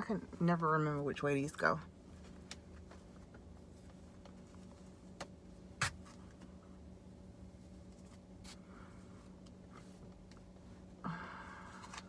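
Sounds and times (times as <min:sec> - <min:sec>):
low steady hum: 0:00.0 - 0:12.0
rustling of cloth mask and hair: 0:02.0 - 0:06.8.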